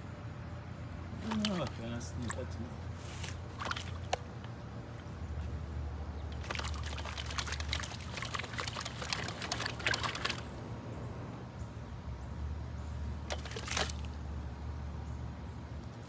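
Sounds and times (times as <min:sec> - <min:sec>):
muddy water splashing: 0:01.0 - 0:11.1, 0:13.2 - 0:14.6.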